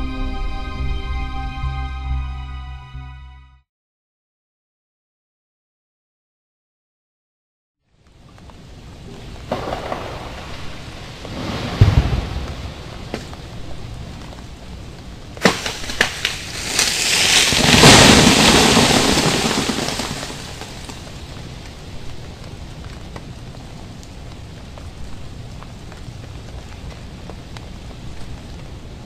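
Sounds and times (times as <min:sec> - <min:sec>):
freezing rain patter and dripping: 0:07.8 - 0:29.0
crash of breaking ice and branches: 0:09.5 - 0:10.7, 0:15.4 - 0:21.0
ice-coated limbs cracking: 0:15.4 - 0:21.0.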